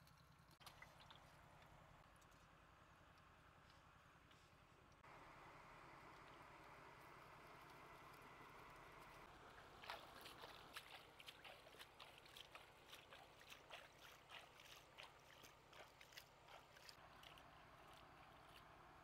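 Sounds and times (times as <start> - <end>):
hands splashing water: 9.6 - 18.7.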